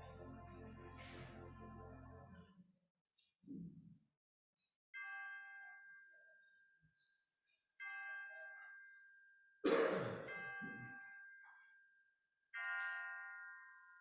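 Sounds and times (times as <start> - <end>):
loud cough: 9.6 - 10.3.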